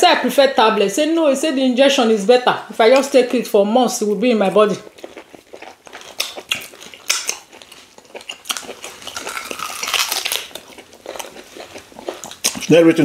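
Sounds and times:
wet mouth smacks and clicks: 5.0 - 7.6, 12.1 - 12.7.

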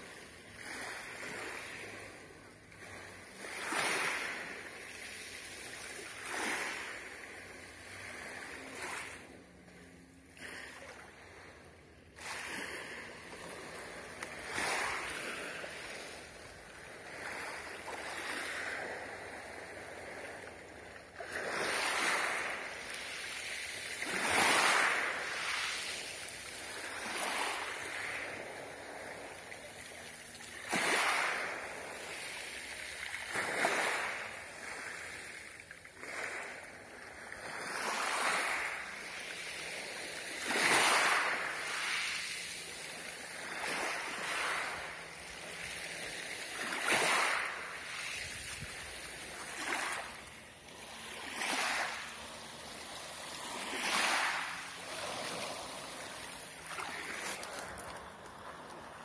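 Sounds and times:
waves washing over pebble beach: 0.0 - 9.3, 12.1 - 59.0.

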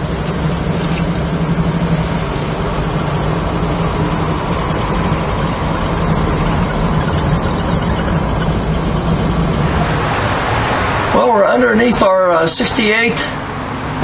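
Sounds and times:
car engine cruising: 0.0 - 14.0
road and tyre noise: 0.0 - 14.0.

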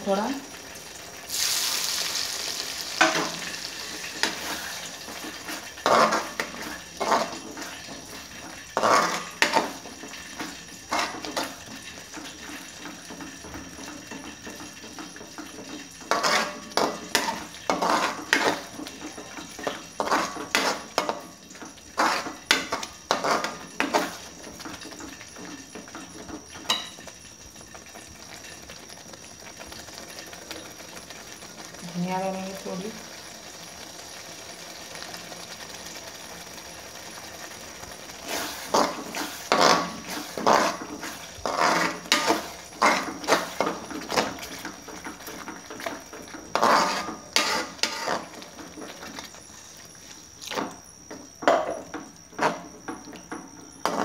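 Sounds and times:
oil sizzling in a pan: 0.0 - 54.0
metal spoon scraping a pan: 2.5 - 27.2, 38.2 - 54.0.

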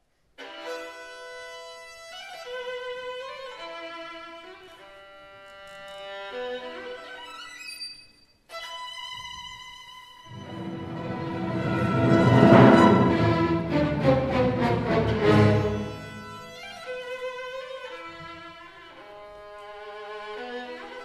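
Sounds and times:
solo violin melody: 0.4 - 7.8, 8.5 - 21.0.

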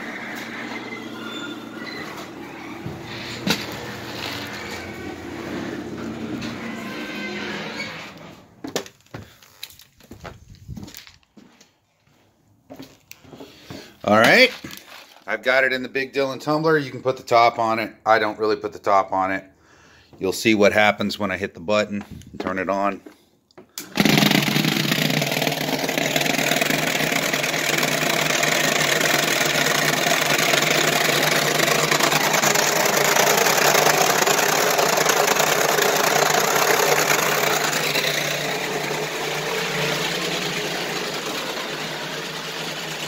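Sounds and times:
vibratory tumbler humming and rattling: 0.0 - 8.3, 24.0 - 43.0.

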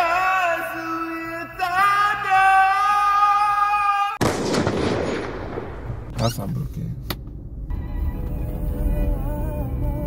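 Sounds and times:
man singing a held note: 8.4 - 10.0.

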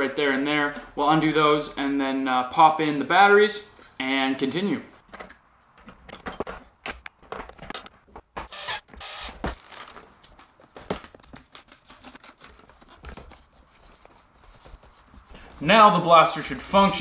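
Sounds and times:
plastic bag rustling: 9.4 - 15.6.

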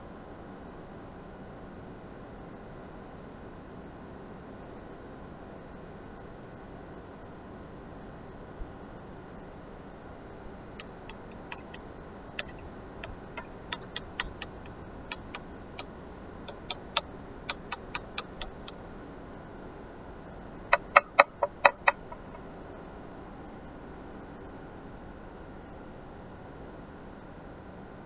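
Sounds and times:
light sharp clicks: 10.8 - 11.8, 12.4 - 15.4, 16.5 - 18.8.

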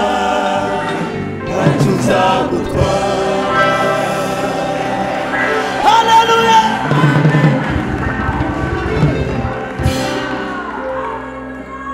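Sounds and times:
held tones over pulsing beat: 2.7 - 10.2
sharp hit in music: 3.2 - 6.0.

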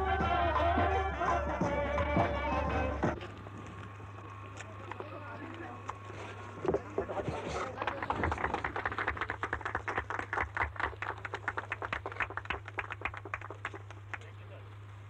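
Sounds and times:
group of people applauding: 7.0 - 14.6.

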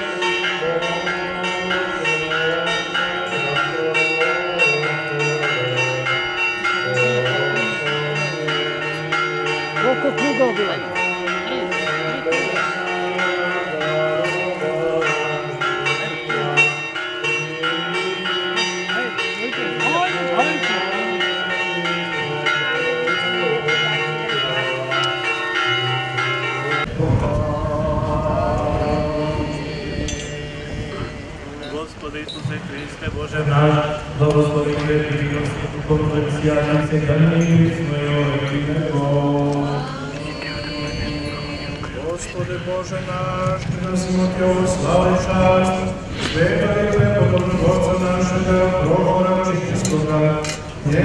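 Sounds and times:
men chanting: 0.0 - 25.3, 26.2 - 31.7, 33.4 - 51.0
church bells ringing: 0.0 - 32.0, 32.7 - 51.0.

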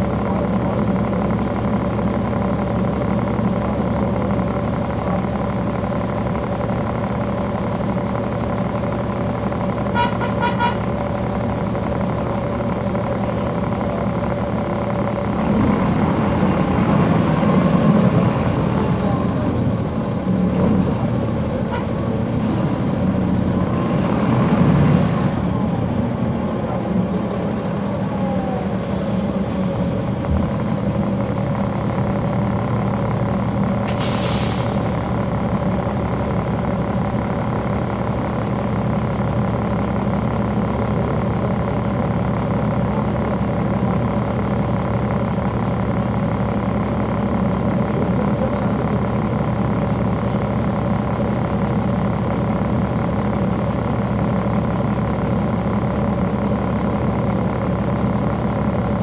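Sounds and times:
bus diesel engine running: 0.0 - 59.0
hiss of released air: 33.9 - 34.8.

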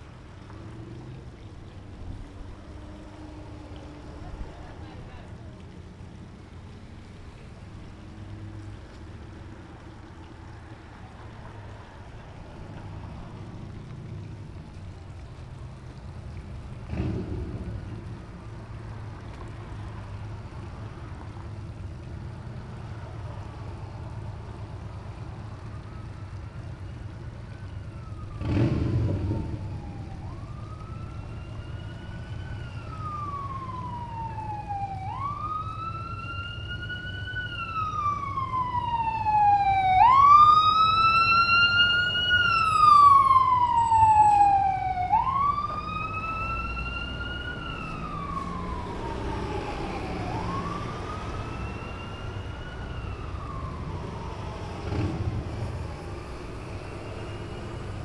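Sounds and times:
emergency siren wailing: 23.2 - 58.0.

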